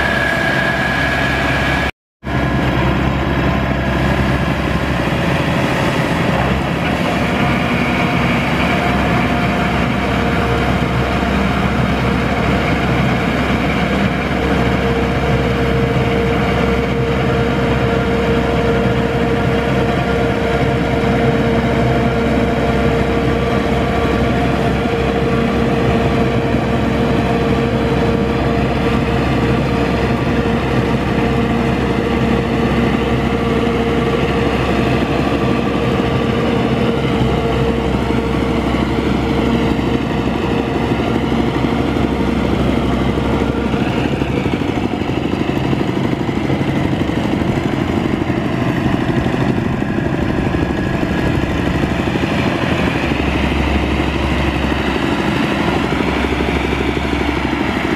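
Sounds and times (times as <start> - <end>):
tiller churning wet mud: 0.0 - 57.9
tractor engine running: 0.0 - 57.9.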